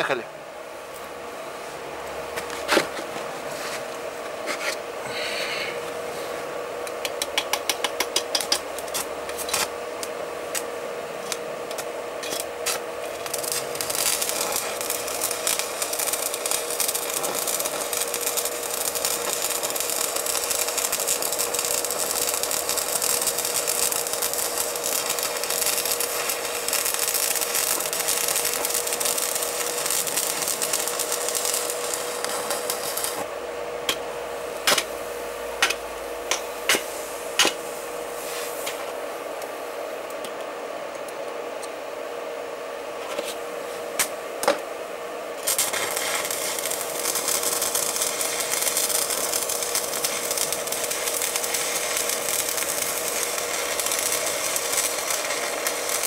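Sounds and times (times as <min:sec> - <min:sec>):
steady hum: 0:00.0 - 0:56.0
insulation crackling and sizzling: 0:07.0 - 0:39.0, 0:45.4 - 0:56.0.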